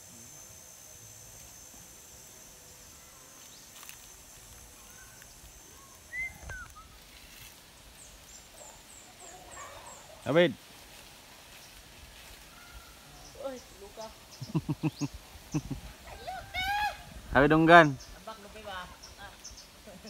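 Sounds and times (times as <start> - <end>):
high insect drone: 0.0 - 20.0
whistled bird calls: 4.9 - 7.1.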